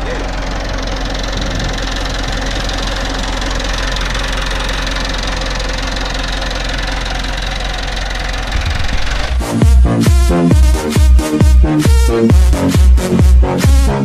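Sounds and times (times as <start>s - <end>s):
tractor diesel engine running: 0.0s - 14.0s
electronic dance music: 8.5s - 14.0s.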